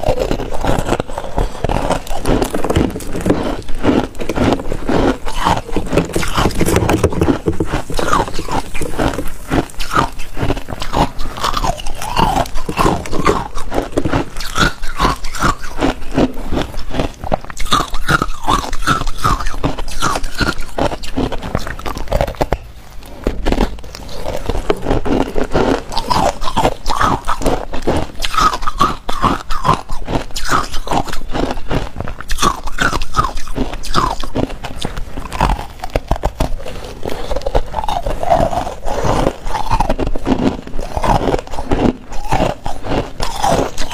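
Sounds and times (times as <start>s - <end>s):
person crunching ice: 0.0s - 43.9s.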